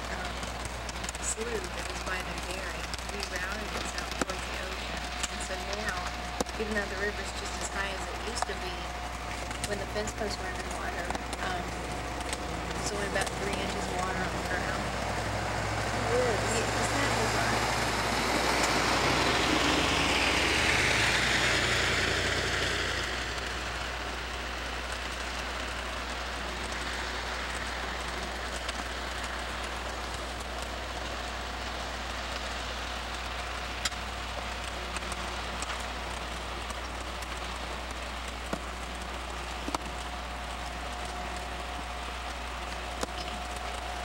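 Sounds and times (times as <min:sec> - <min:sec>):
rain hissing: 0:00.0 - 0:44.0
raindrop ticks: 0:00.0 - 0:44.0
passing vehicle tyre noise: 0:14.1 - 0:44.0.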